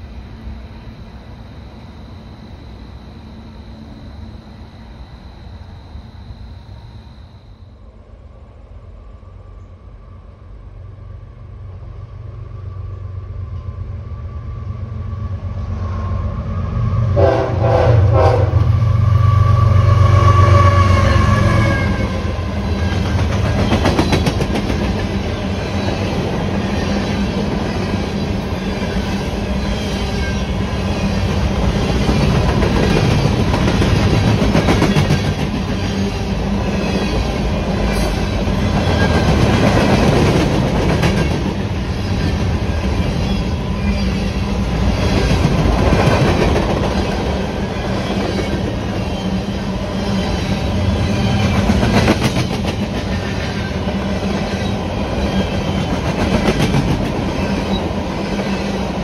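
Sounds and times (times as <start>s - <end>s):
diesel locomotive engine: 0.0s - 59.0s
train horn: 17.0s - 22.8s
train wheels clicking on rail joints: 22.5s - 29.2s, 29.8s - 43.4s, 50.3s - 58.6s.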